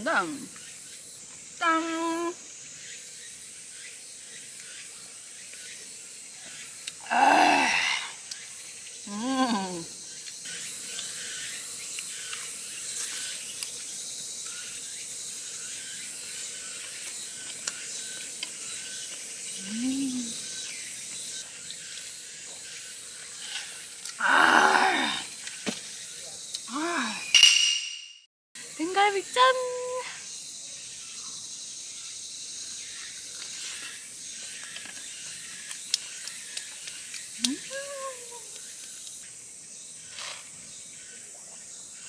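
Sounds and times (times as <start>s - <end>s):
steady high hiss: 0.0s - 27.6s
woman's vocal reactions while eating: 7.0s - 8.2s, 9.1s - 10.0s, 19.6s - 20.4s, 24.2s - 25.4s, 37.4s - 38.6s.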